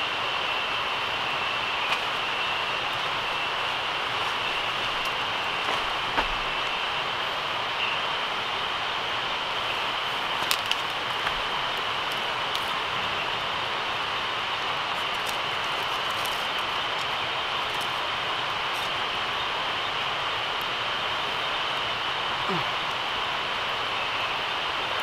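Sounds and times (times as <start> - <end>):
insects chirring: 0.0 - 25.0
campfire crackling and popping: 1.8 - 6.9, 9.5 - 21.9.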